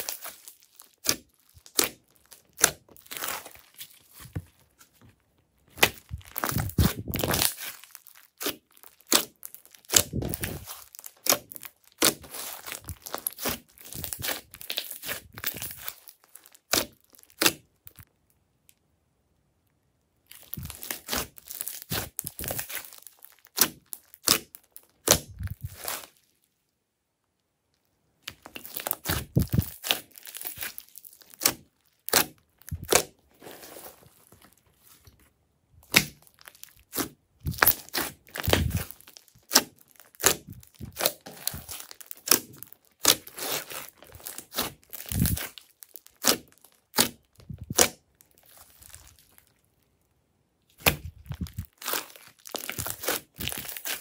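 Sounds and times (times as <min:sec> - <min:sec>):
slime clicking and popping: 0:00.0 - 0:03.2.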